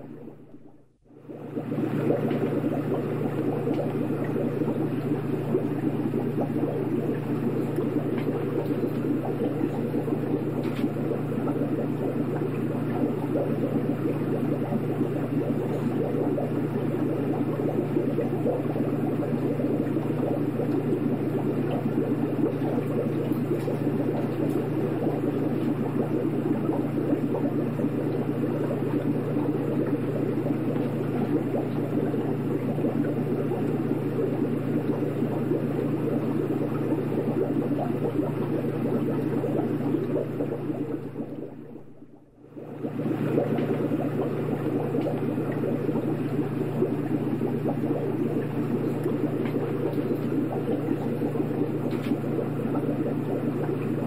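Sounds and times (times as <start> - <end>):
aquarium water bubbling: 0.0 - 54.0
low even hum: 0.0 - 54.0.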